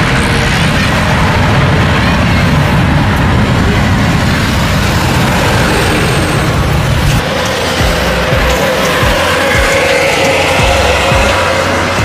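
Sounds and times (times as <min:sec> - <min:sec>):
jet engines running: 0:00.0 - 0:12.0.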